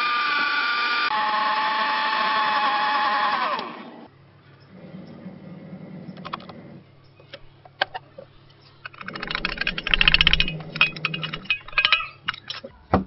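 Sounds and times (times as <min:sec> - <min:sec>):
steel jar rattling and scraping: 0:08.7 - 0:12.7.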